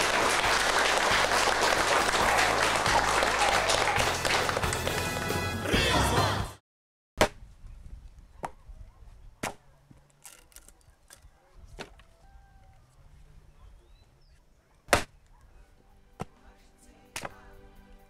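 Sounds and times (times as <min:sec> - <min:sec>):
axe chopping wooden pole: 0:07.2 - 0:07.4, 0:09.4 - 0:09.7, 0:14.9 - 0:15.2, 0:16.2 - 0:16.4, 0:17.2 - 0:17.4.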